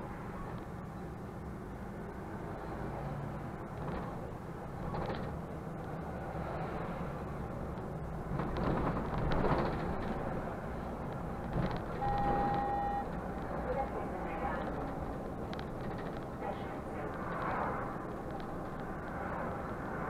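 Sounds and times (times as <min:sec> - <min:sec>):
bus engine drone: 0:00.0 - 0:20.0
road rumble: 0:00.0 - 0:20.0
bus body rattling: 0:03.7 - 0:05.7, 0:07.8 - 0:18.8
steady electronic beep: 0:12.0 - 0:13.1.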